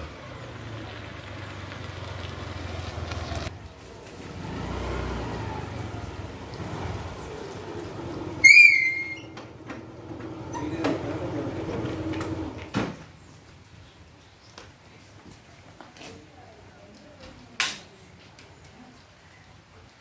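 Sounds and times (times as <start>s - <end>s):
scooter engine running: 0.0s - 12.6s
short high whistle tone: 8.4s - 9.4s.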